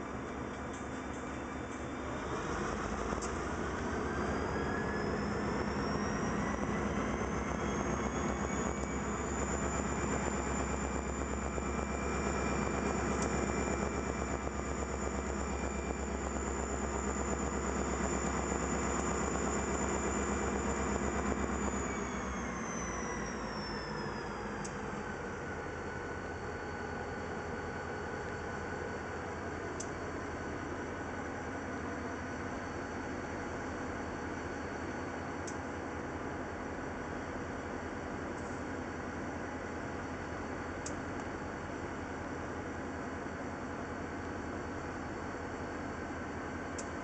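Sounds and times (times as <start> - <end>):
locomotive engine revving: 2.0 - 25.2.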